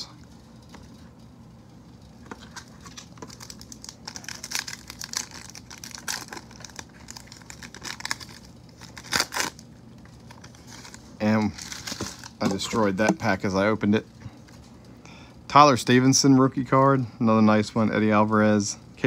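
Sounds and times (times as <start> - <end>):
foil wrapper crinkling and tearing: 2.2 - 13.4.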